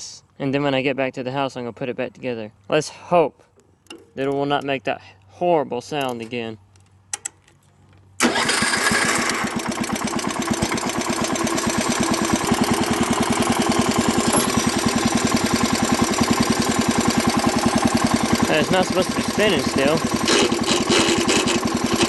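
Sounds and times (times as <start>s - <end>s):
tractor engine starting and running: 5.8s - 22.0s.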